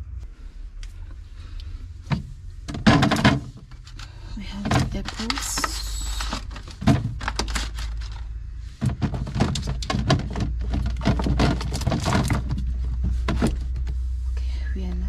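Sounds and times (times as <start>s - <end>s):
steady low hum: 0.0s - 15.0s
apples knocking in plastic drawer: 2.1s - 3.8s, 4.4s - 8.1s, 8.8s - 13.8s.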